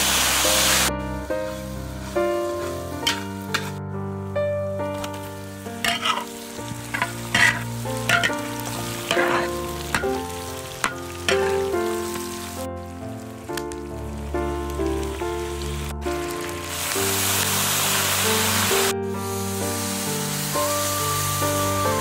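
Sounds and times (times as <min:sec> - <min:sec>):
food sizzling in hot oil: 0:00.0 - 0:03.8, 0:04.9 - 0:22.0
metal spatula scraping a wok: 0:02.6 - 0:03.8, 0:05.8 - 0:10.2.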